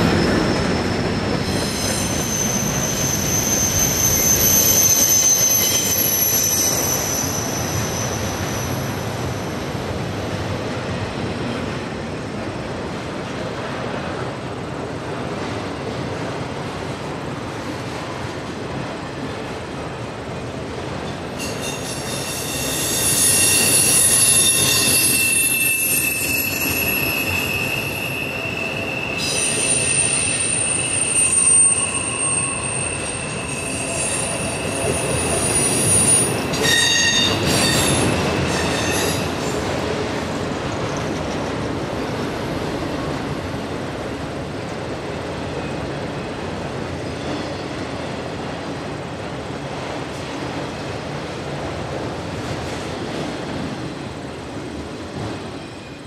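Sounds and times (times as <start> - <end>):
wheel flanges squealing on rail: 0.0 - 9.7, 21.1 - 39.8, 46.8 - 48.2, 55.3 - 56.0
rumble of train cars: 0.0 - 56.0.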